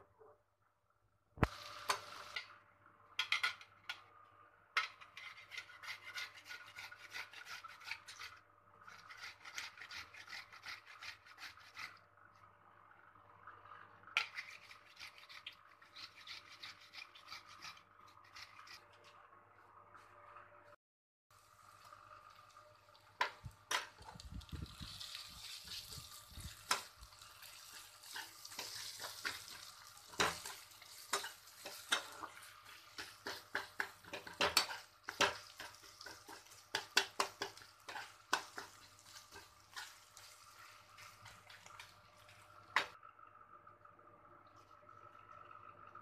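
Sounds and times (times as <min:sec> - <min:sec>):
onions sizzling in oil: 0:01.4 - 0:02.5, 0:21.4 - 0:42.9
metal spatula scraping pan: 0:04.8 - 0:12.0, 0:14.2 - 0:19.0, 0:26.6 - 0:41.9.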